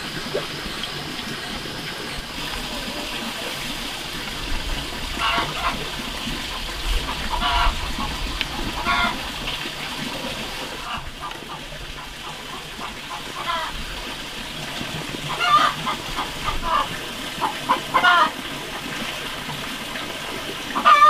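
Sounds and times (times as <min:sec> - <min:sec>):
chickens clucking: 0:00.0 - 0:09.6, 0:10.2 - 0:13.8, 0:15.2 - 0:18.4, 0:20.7 - 0:21.0.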